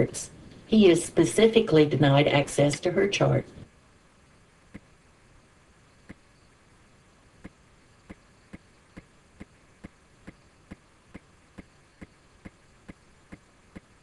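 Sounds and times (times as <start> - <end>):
faint hiss: 0.0 - 14.0
regular ticking: 6.0 - 6.5, 7.4 - 14.0.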